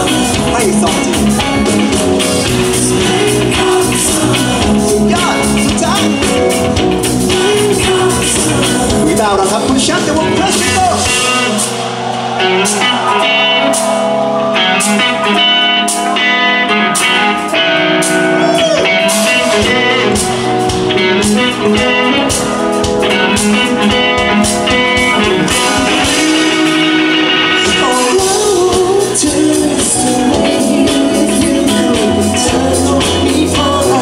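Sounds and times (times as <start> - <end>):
man singing: 0.0 - 11.6, 18.3 - 20.3, 23.7 - 34.0
live pop-rock band: 0.0 - 34.0.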